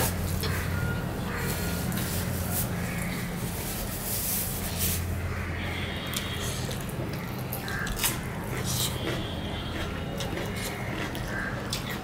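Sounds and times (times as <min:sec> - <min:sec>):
wet chewing and mouth smacks: 0:06.1 - 0:12.0.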